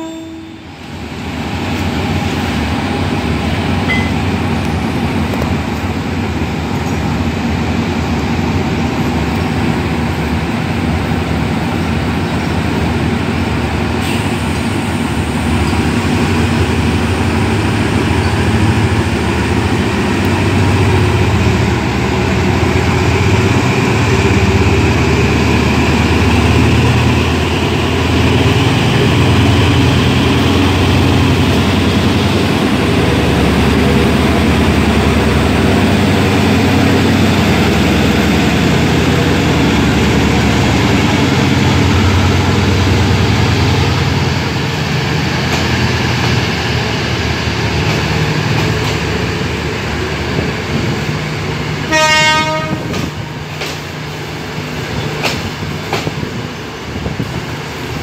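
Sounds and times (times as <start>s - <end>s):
train horn blast: 0.0s - 0.7s, 51.8s - 53.3s
diesel locomotive engine: 0.0s - 58.0s
train coaches rolling by: 0.0s - 58.0s.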